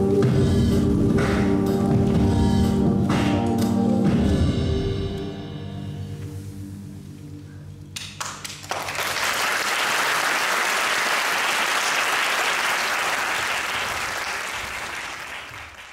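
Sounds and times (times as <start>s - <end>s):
audience applauding: 8.0s - 15.9s.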